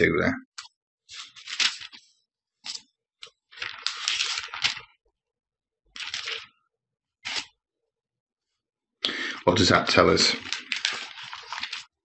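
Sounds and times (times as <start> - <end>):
paper pages turning: 0.6 - 5.0, 5.9 - 6.6, 7.2 - 7.6, 9.6 - 12.0.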